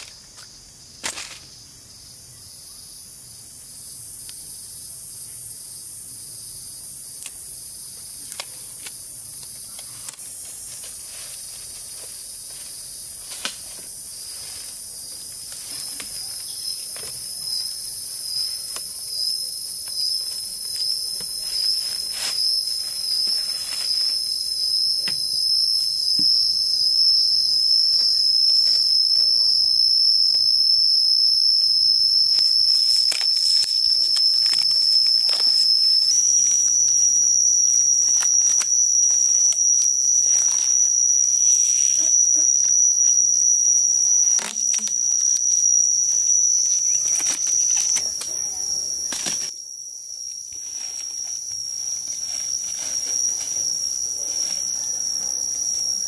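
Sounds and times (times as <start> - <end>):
high-pitched insect drone: 0.0 - 56.0
packing tape pulled off roll: 32.3 - 36.2, 46.9 - 48.3.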